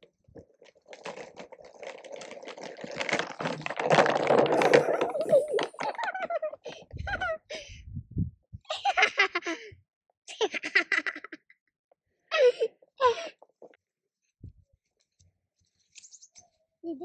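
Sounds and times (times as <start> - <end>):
boy laughing and giggling: 4.8 - 7.9, 8.6 - 11.5, 12.3 - 13.4.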